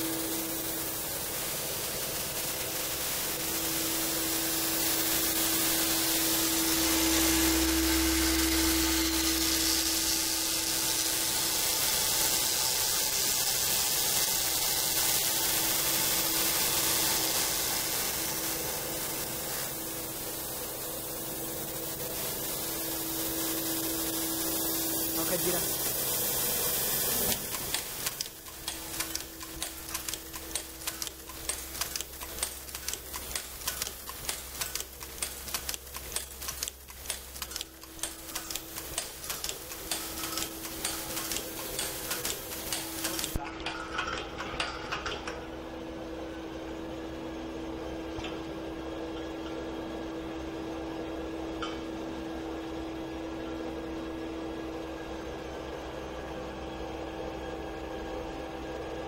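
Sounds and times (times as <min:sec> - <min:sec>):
machine hum with held tone: 0:00.0 - 0:59.0
machine clicking rapidly: 0:27.3 - 0:43.4.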